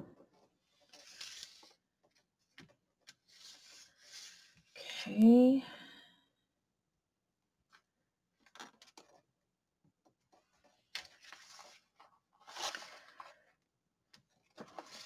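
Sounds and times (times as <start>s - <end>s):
stiff paper rustling and sliding: 0.7s - 1.8s, 3.1s - 4.7s, 11.0s - 13.4s, 14.5s - 15.0s.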